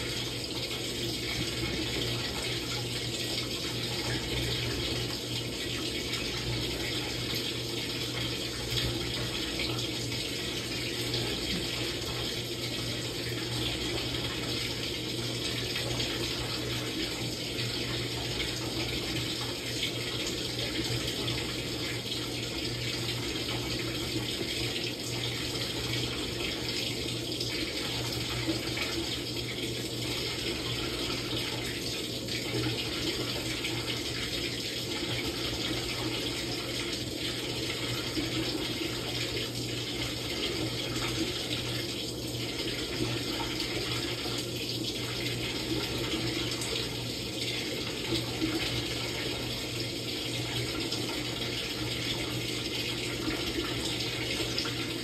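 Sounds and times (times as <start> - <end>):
washing machine low hum: 0.0 - 55.0
washing machine water noise: 0.0 - 55.0.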